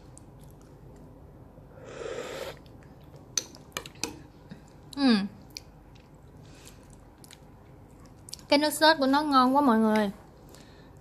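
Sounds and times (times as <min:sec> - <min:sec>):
slurp of broth from a spoon: 0:01.8 - 0:02.7.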